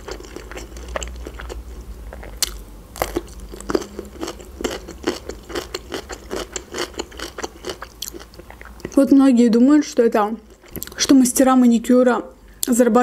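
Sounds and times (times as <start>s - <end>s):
person chewing crunchy food: 0.0s - 9.0s, 10.4s - 11.0s.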